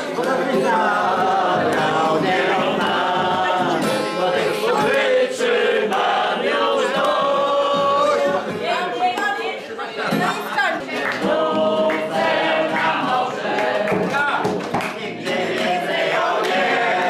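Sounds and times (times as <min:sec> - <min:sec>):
group of people singing: 0:00.0 - 0:17.0.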